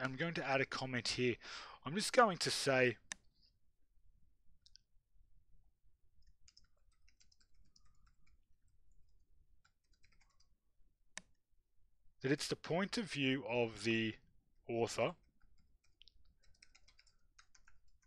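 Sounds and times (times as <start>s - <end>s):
computer keyboard typing: 6.2s - 10.6s, 15.2s - 18.0s.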